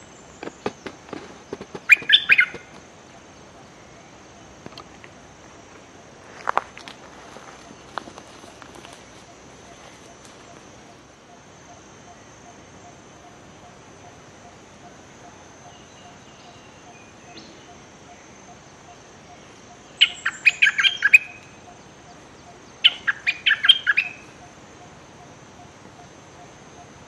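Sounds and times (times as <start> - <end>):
bulbul chattering call: 1.8 - 2.8, 9.2 - 27.0.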